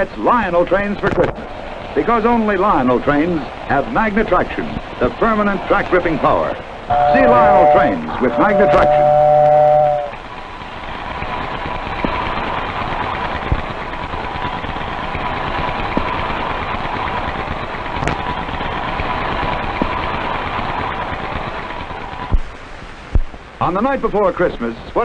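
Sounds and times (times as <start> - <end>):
model train running on track: 0.0 - 25.0
faint steady tone: 6.9 - 10.2.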